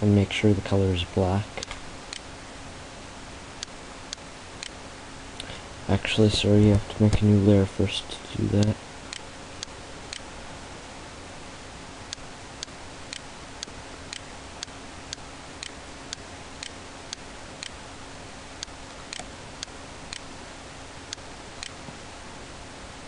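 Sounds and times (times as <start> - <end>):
faint steady hum: 0.0 - 23.0
steady ticking: 12.1 - 17.8, 18.6 - 20.3.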